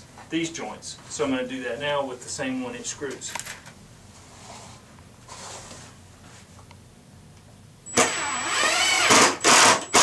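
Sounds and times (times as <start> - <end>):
power drill driving screw into wood: 7.9 - 10.0.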